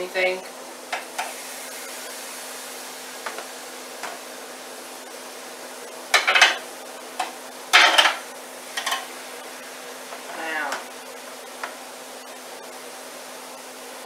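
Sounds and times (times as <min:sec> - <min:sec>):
chicken sizzling on grill pan: 0:00.9 - 0:14.0
utensil clattering on pan: 0:06.1 - 0:06.6, 0:07.7 - 0:08.2, 0:08.8 - 0:09.1.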